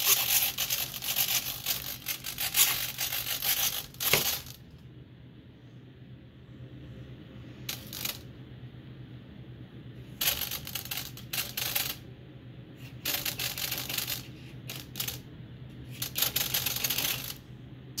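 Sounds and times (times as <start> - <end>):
small servos whirring: 0.0 - 4.6.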